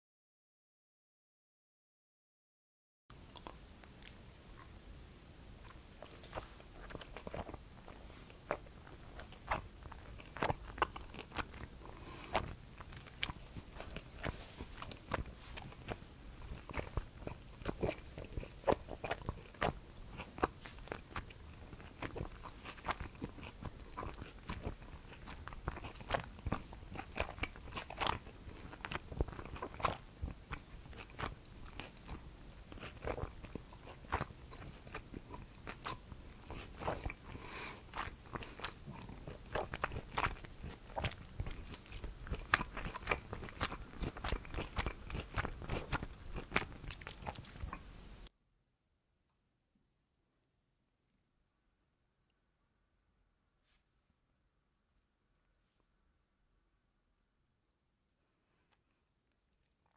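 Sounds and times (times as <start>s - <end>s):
person chewing sticky food: 3.1s - 4.8s, 5.5s - 48.3s.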